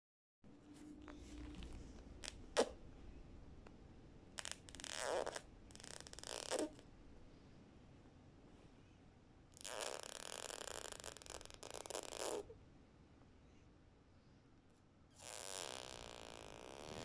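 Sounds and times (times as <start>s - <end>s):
baby blowing raspberries: 4.4s - 6.8s.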